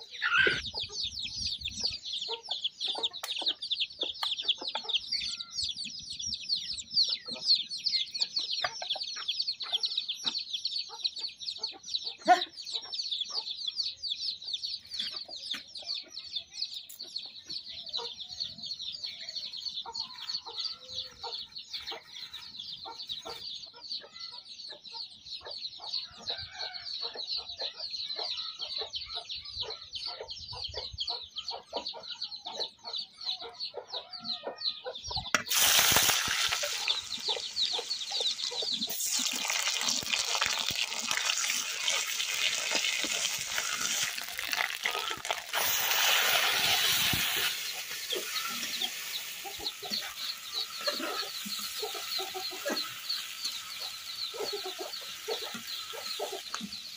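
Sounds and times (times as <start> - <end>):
chickens clucking: 0.0 - 56.9
oil crackling: 35.4 - 56.7
onions sizzling in oil: 35.4 - 56.9.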